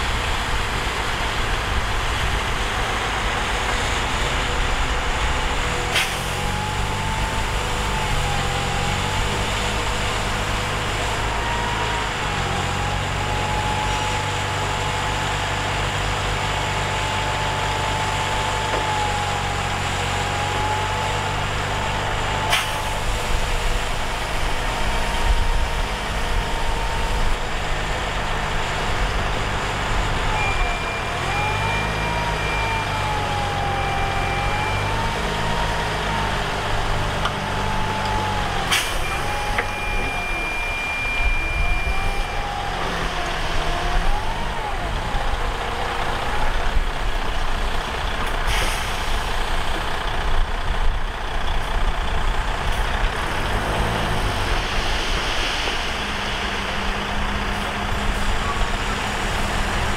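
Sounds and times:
heavy diesel engines running: 0:00.0 - 0:59.9
wavering high whine: 0:37.7 - 0:43.3.

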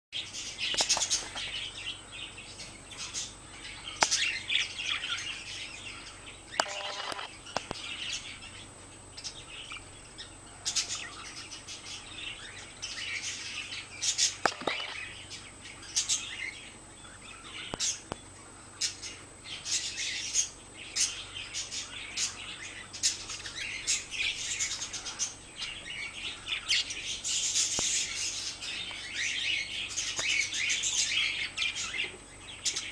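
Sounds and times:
sharp clicks: 0:06.5 - 0:07.8, 0:14.4 - 0:15.0.

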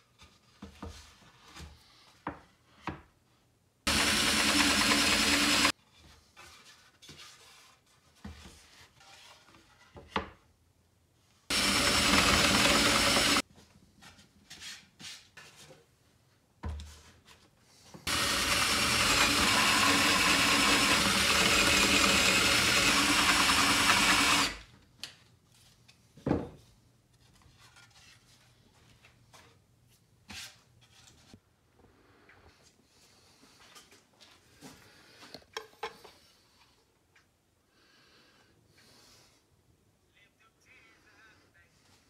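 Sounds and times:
cordless drill boring into wood: 0:03.9 - 0:05.7, 0:11.5 - 0:13.4, 0:18.1 - 0:24.7.

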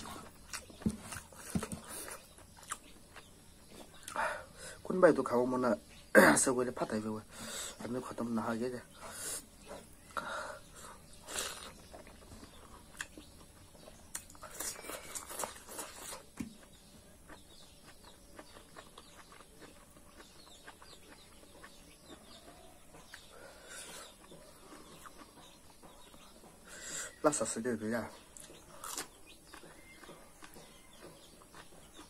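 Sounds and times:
wet chewing and lip-smacking: 0:00.0 - 0:04.2, 0:10.8 - 0:26.7, 0:28.2 - 0:32.0.

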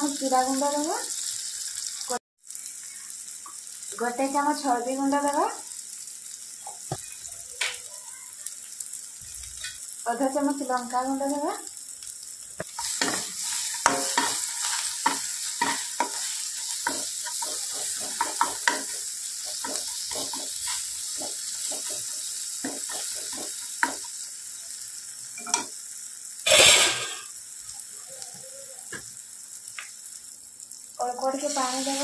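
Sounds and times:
food sizzling in hot oil: 0:00.0 - 0:32.0
spatula scraping a pan: 0:12.6 - 0:24.1.

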